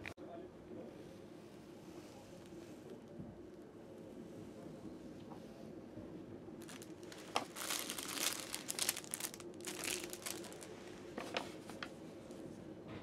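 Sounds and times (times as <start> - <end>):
plastic bag crinkling: 6.6 - 11.8.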